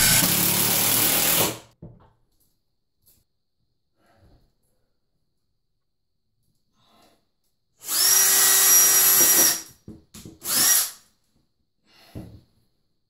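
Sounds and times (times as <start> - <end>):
cordless drill motor whining: 7.8 - 9.6.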